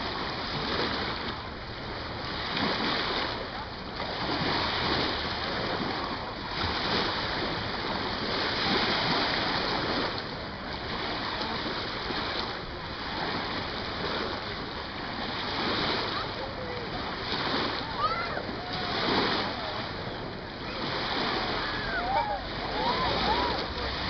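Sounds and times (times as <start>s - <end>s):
water lapping and splashing: 0.0s - 24.0s.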